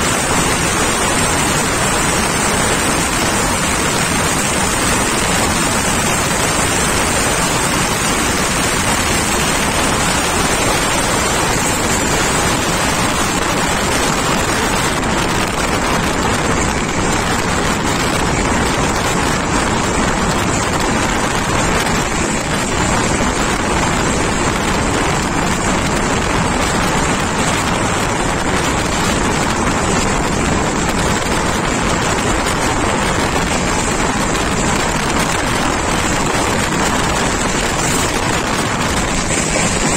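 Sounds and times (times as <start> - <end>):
train running noise inside coach: 0.0 - 39.9.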